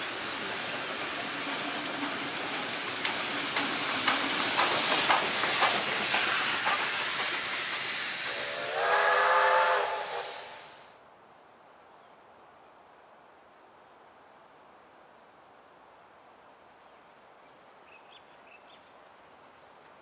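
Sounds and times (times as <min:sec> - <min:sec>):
wheels clicking on rails: 0:00.0 - 0:08.7
steam hiss: 0:00.0 - 0:11.0
steam locomotive whistle: 0:08.2 - 0:10.9.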